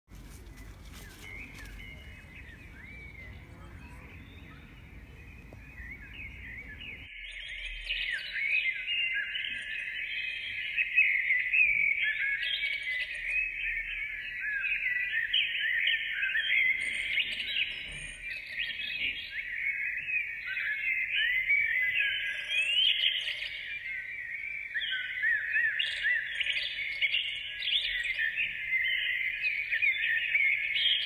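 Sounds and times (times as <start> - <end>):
low background rumble: 0.1 - 7.1
small birds chirping: 0.1 - 31.0.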